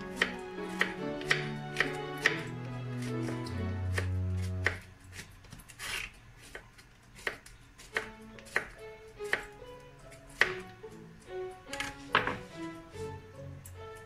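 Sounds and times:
soft background music: 0:00.0 - 0:05.3, 0:07.2 - 0:14.0
knife knocking on wooden board: 0:12.1 - 0:12.5.

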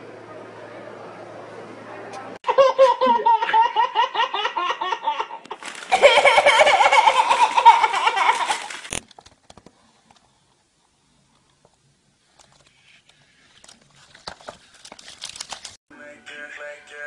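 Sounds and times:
baby laughing: 0:02.5 - 0:08.9.

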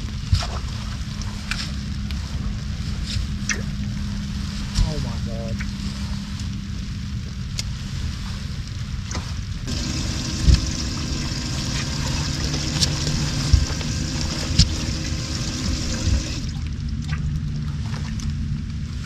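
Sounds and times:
water trickling and splashing: 0:00.0 - 0:18.4
small electric motor running: 0:09.7 - 0:16.5.

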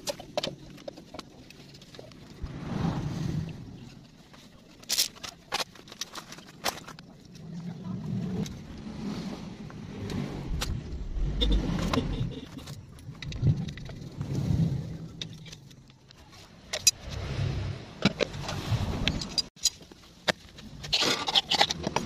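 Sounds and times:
vehicle engine rumble: 0:07.0 - 0:19.6.

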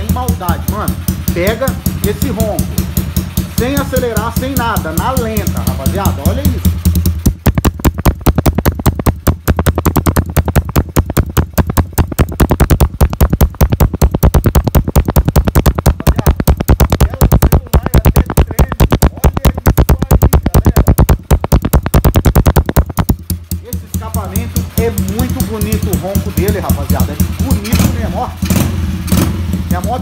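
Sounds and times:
motorcycle engine idling: 0:00.0 - 0:30.0.

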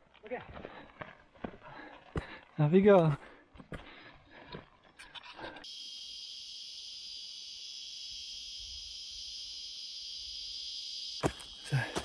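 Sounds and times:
high-pitched insect chorus: 0:05.0 - 0:12.0.

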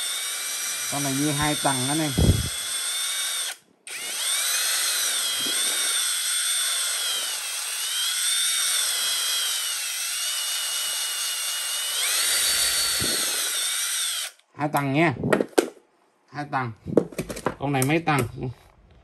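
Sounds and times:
small electric motor whining: 0:00.0 - 0:14.4.

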